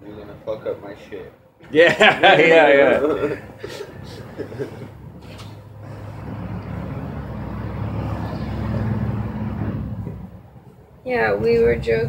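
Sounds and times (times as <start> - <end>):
road vehicle passing by: 2.5 - 12.0.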